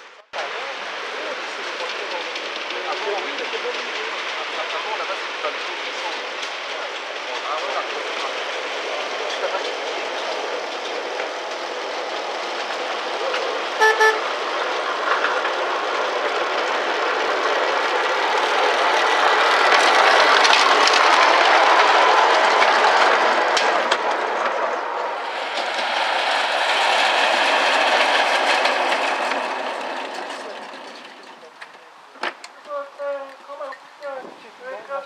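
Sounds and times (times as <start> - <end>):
miniature train rolling on track: 0.1 - 35.0
train horn toots: 13.8 - 14.3.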